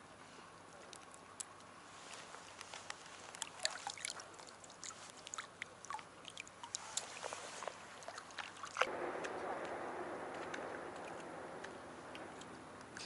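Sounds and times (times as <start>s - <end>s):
small water splashes: 2.8s - 9.4s
water trickling drips: 2.8s - 9.4s.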